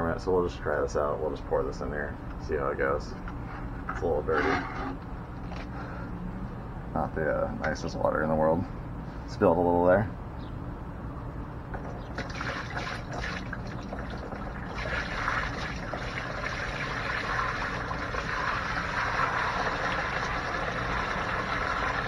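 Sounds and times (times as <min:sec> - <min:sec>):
water pouring into plastic bin: 0:12.1 - 0:22.0.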